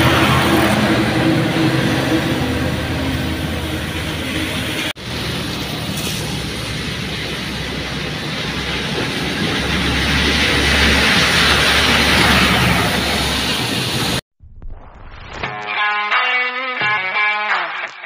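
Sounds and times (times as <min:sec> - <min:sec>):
trucks passing with wet spray: 0:00.0 - 0:14.2
tyres hissing on wet road: 0:00.0 - 0:14.2.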